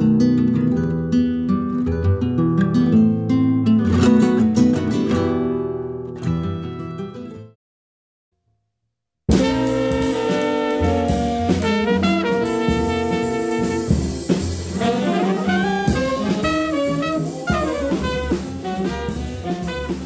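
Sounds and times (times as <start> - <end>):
music with held notes: 9.3 - 20.0.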